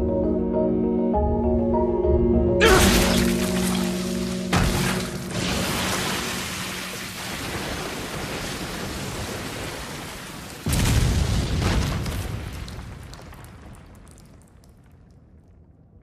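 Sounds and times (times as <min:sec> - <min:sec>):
heavy splash impact: 0:02.6 - 0:11.8
rushing liquid spray: 0:02.8 - 0:10.6.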